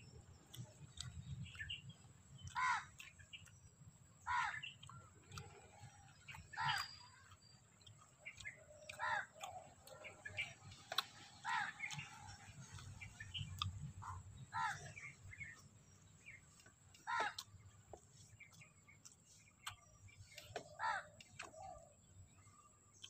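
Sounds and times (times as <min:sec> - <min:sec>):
small birds chirping: 0:00.0 - 0:23.0
crows cawing: 0:02.5 - 0:03.1, 0:04.2 - 0:05.0, 0:06.5 - 0:07.0, 0:08.7 - 0:09.7, 0:11.4 - 0:12.4, 0:14.0 - 0:15.1, 0:17.0 - 0:17.4, 0:20.6 - 0:21.2.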